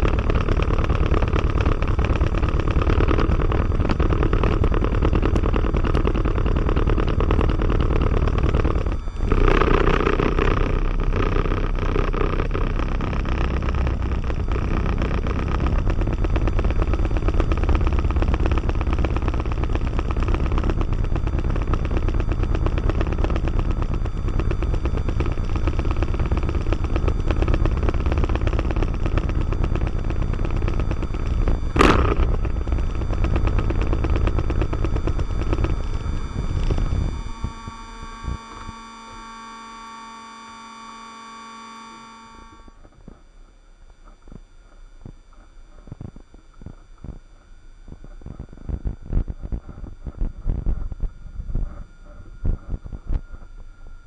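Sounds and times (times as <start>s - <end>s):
aircraft engine and propeller running: 0.0s - 42.6s.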